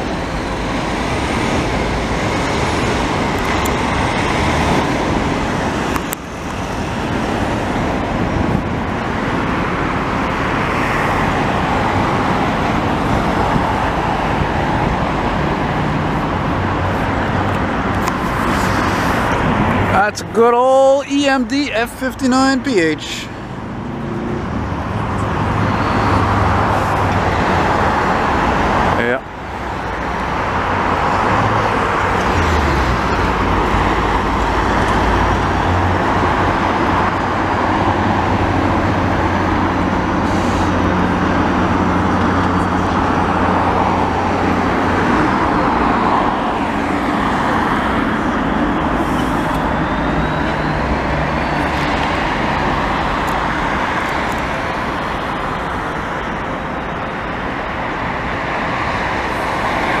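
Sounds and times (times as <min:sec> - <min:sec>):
city street traffic: 0:00.0 - 1:00.0
diesel locomotive engine hum: 0:00.0 - 1:00.0.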